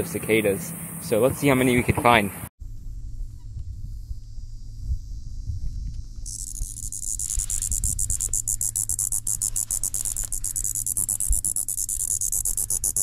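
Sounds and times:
cicada buzzing: 2.6s - 13.0s.

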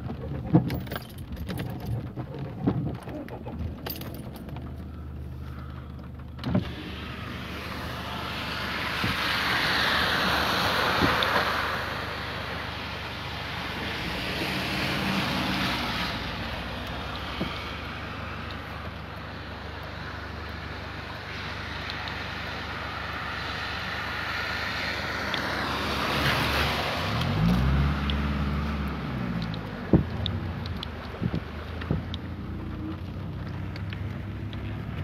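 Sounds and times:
light rain taps: 0.0s - 6.8s, 7.5s - 35.0s
car engine hum: 0.0s - 35.0s
tyres hissing on wet road: 5.0s - 35.0s.

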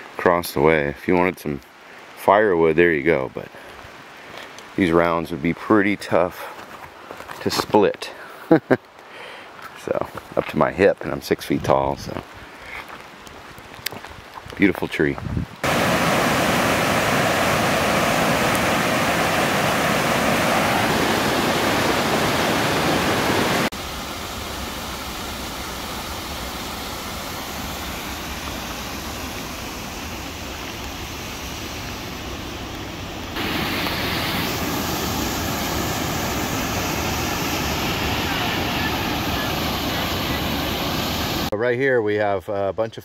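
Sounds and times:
river and waterfall rushing: 15.6s - 41.6s.

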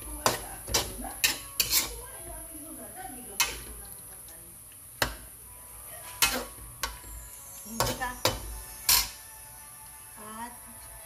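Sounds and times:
metal ladle stirring in wok: 0.0s - 2.1s, 6.0s - 9.4s.

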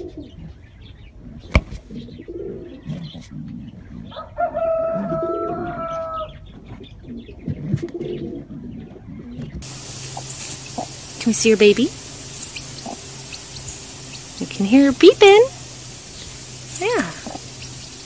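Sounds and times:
pigeon cooing and grunting: 0.0s - 0.6s, 1.2s - 4.3s, 4.9s - 9.6s
sharp slap: 1.5s - 1.8s.

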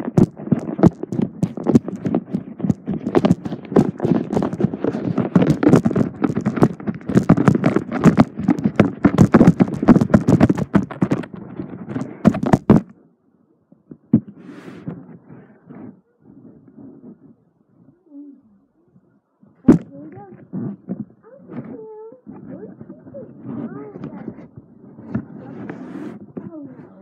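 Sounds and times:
rapid knocks and scuffs: 0.0s - 12.9s.

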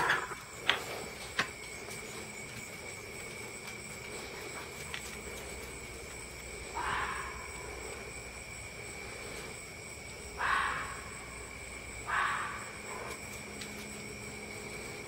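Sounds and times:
night insects trilling: 0.0s - 15.0s
fox barking: 6.6s - 8.0s, 10.3s - 13.2s.

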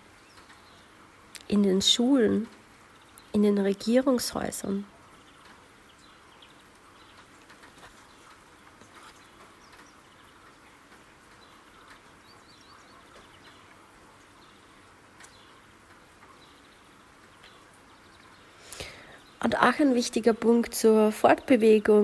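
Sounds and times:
birds chirping: 0.0s - 22.0s
rain hissing: 0.0s - 22.0s
drops ticking: 4.9s - 19.3s.

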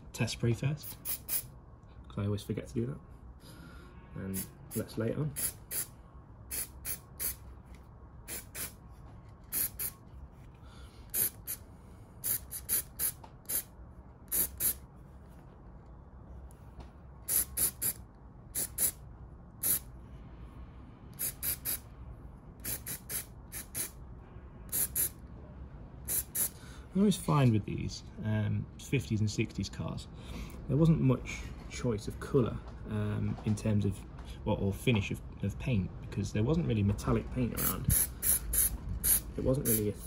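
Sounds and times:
spray paint can hissing: 0.9s - 1.5s, 5.4s - 5.9s, 6.5s - 7.4s, 8.3s - 8.8s, 9.5s - 10.0s, 11.1s - 11.6s, 12.2s - 13.7s, 14.3s - 14.8s, 17.3s - 18.0s, 18.6s - 19.0s, 19.6s - 19.8s, 21.2s - 21.8s, 22.6s - 24.0s, 24.7s - 25.2s, 26.1s - 26.6s, 37.6s - 39.9s.

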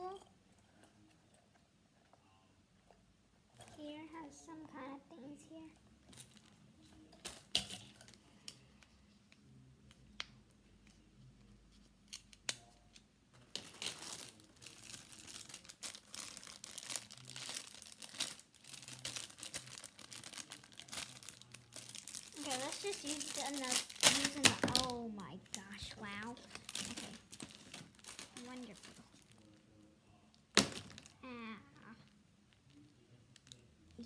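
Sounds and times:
plastic bag crinkling: 13.4s - 29.8s, 30.5s - 31.2s.

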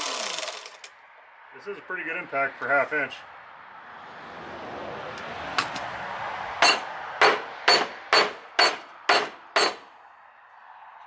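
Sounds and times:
pneumatic impact wrench: 0.0s - 0.9s, 6.6s - 9.8s.

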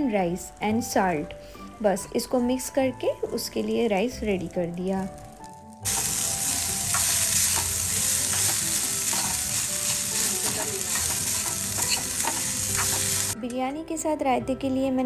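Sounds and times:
fried rice sizzling in a pan: 5.2s - 13.4s
spoon stirring and scraping: 5.9s - 13.4s.

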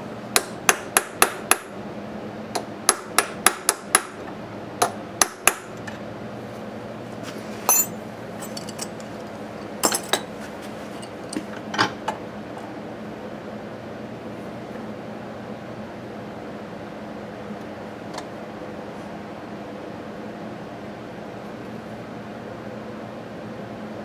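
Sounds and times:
hammer tapping on metal punch: 0.3s - 1.7s, 2.5s - 4.2s, 4.8s - 5.7s
light metal clinks: 7.7s - 9.1s.

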